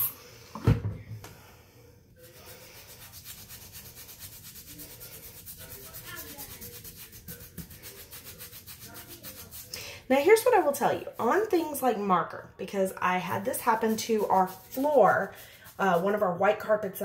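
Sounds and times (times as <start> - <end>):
brush scrubbing sock: 2.2 - 11.7, 13.3 - 16.3.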